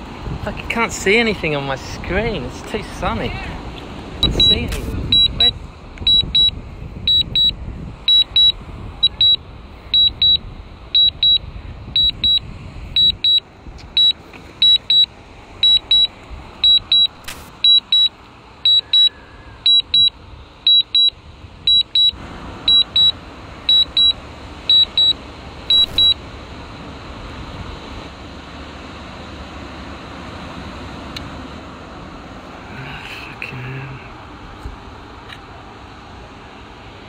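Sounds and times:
high double beep alarm: 4.2s - 11.4s, 12.0s - 12.4s, 13.0s - 13.4s, 14.0s - 26.2s.

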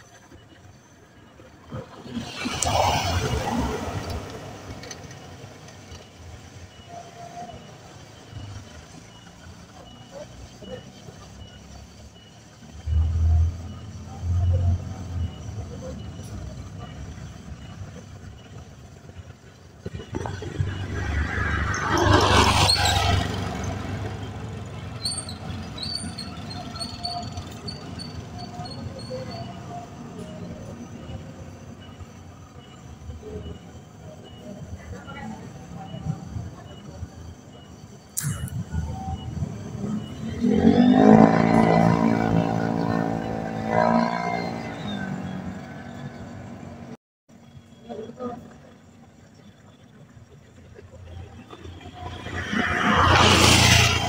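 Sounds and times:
car passing by: 1.9s - 5.0s, 20.2s - 24.4s, 51.9s - 54.0s
short high chirps: 37.6s - 40.2s
motor scooter passing: 39.8s - 46.0s.

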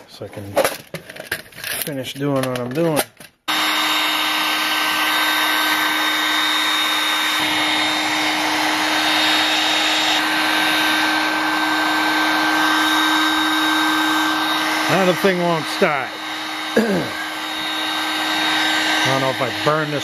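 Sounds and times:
hot air gun blowing: 3.5s - 20.0s.

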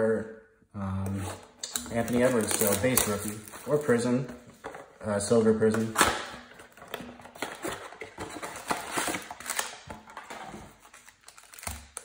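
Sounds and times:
foil packs crinkling: 1.8s - 4.2s
cardboard scraping: 6.7s - 11.2s.

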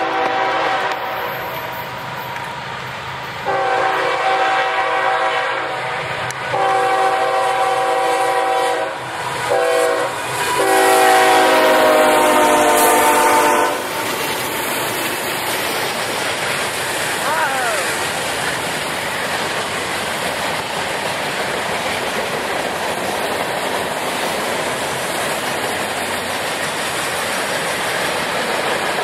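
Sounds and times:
locomotive air horn blasts: 0.0s - 1.8s, 3.4s - 14.1s
train rumbling: 0.0s - 29.0s.

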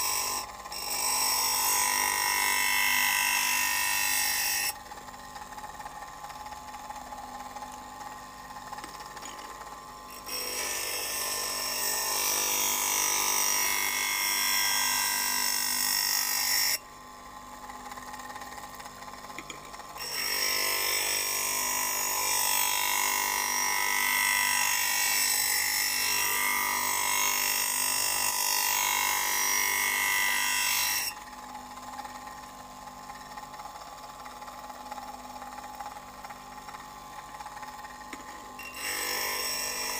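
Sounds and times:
blade grinding harshly: 20.0s - 31.2s, 38.6s - 39.9s.

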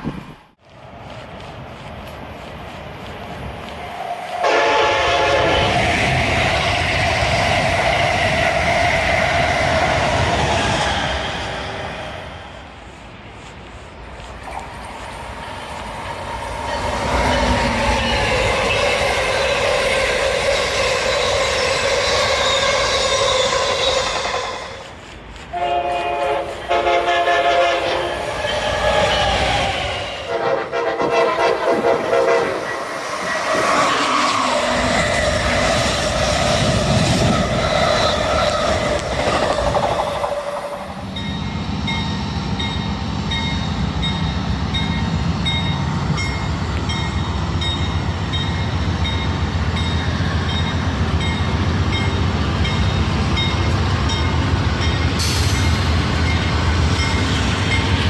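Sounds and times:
train rumbling past: 0.0s - 58.0s
train horn blasts: 4.4s - 5.8s, 25.5s - 28.4s, 30.3s - 32.8s.

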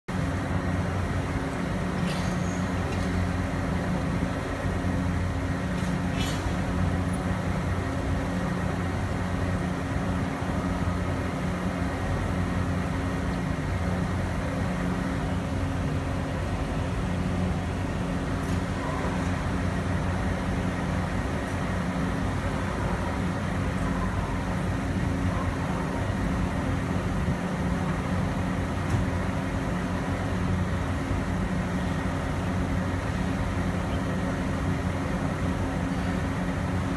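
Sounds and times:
low mechanical drone: 0.1s - 36.9s.

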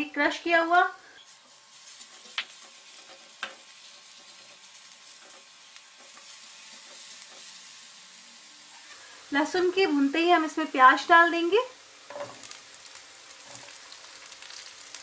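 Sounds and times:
garlic sizzling in oil: 0.4s - 15.0s
spatula tapping pan: 2.2s - 7.5s.

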